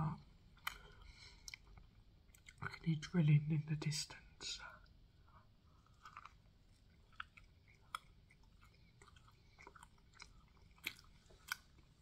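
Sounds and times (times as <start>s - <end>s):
chewing: 0.5s - 2.8s, 4.8s - 12.0s.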